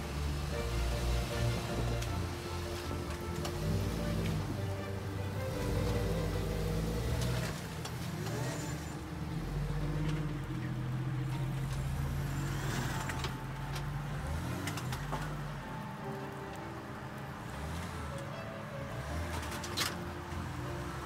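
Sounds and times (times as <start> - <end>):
engine running at low revs: 0.0 - 15.8.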